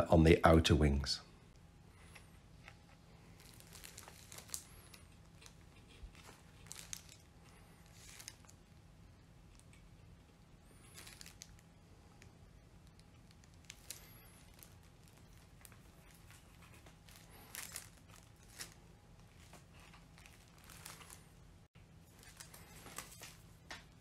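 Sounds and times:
low steady hum: 0:00.0 - 0:24.0
hands rustling on plastic sheet: 0:03.2 - 0:08.6, 0:10.7 - 0:12.2, 0:12.8 - 0:24.0.

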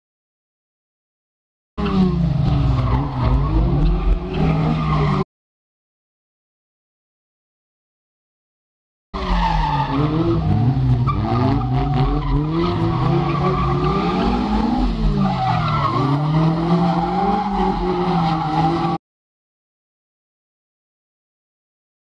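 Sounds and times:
sports car engines revving: 0:01.8 - 0:05.2, 0:09.2 - 0:19.0.

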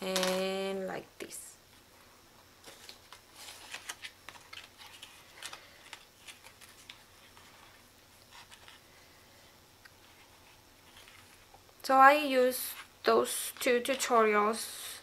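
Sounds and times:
paper rustling: 0:02.6 - 0:09.1, 0:10.0 - 0:11.5.

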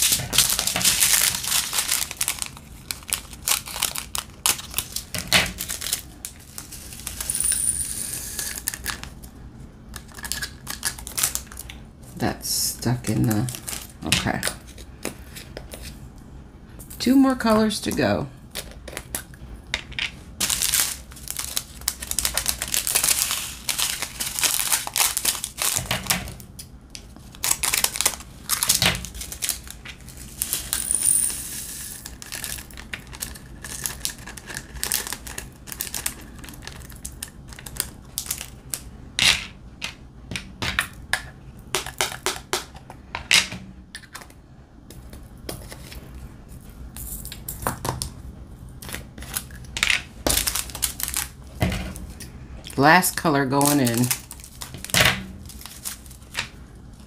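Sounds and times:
plastic bag crinkling: 0:00.0 - 0:07.4, 0:08.2 - 0:09.2, 0:10.0 - 0:11.7, 0:13.2 - 0:14.1, 0:20.4 - 0:26.2, 0:27.2 - 0:30.8, 0:31.7 - 0:38.9, 0:49.1 - 0:52.1, 0:53.4 - 0:57.0.

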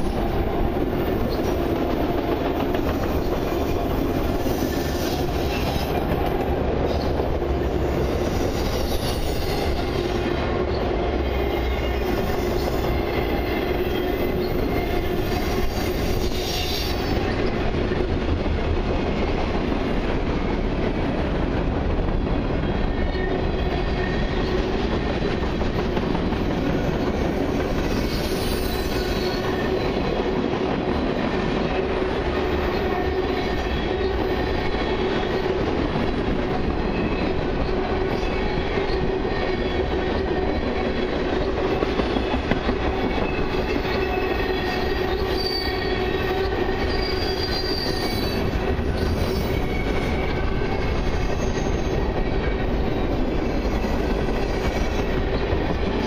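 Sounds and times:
train wheels rolling on rails: 0:00.0 - 0:56.0
high-pitched wheel squeals: 0:27.9 - 0:29.9, 0:43.1 - 0:52.2.

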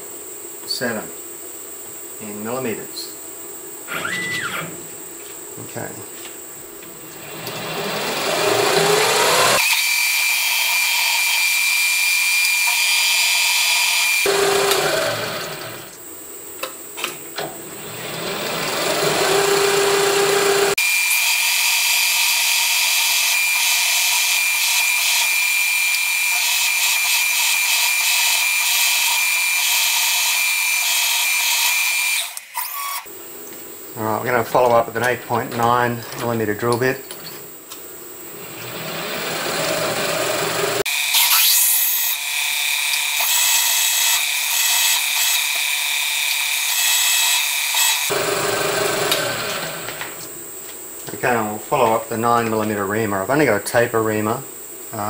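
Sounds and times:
drill whining into metal: 0:03.9 - 0:04.8, 0:07.2 - 0:15.9, 0:17.6 - 0:33.1, 0:38.4 - 0:50.1.

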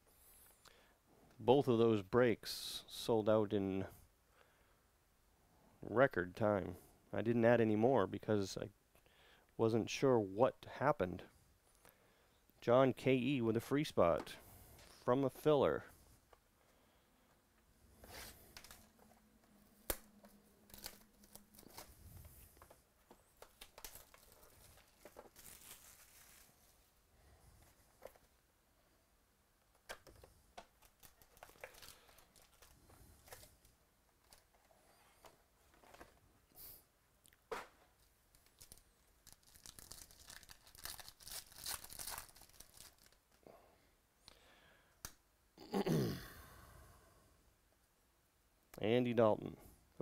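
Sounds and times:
plastic wrap crinkling and tearing: 0:19.8 - 0:26.9, 0:30.2 - 0:34.5, 0:38.0 - 0:43.4.

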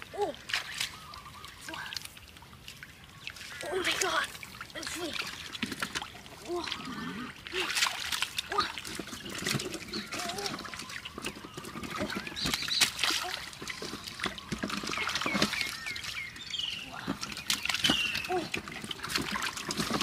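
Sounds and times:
hands splashing in muddy water: 0:05.0 - 0:20.0.

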